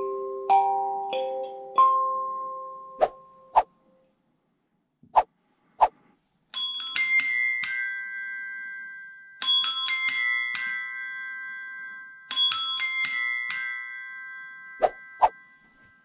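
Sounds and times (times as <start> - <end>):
tuned desk bells ringing: 6.5 - 16.0.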